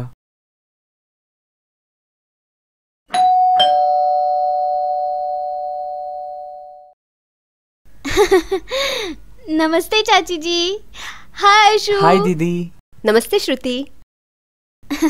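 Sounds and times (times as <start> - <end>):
two-note doorbell chime: 3.1 - 6.9.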